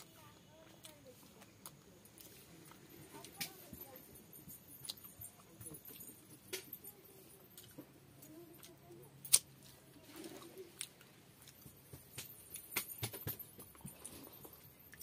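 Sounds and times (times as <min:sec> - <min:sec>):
wet chewing sounds: 0:00.0 - 0:03.9
sharp clicks and smacks: 0:11.9 - 0:13.7.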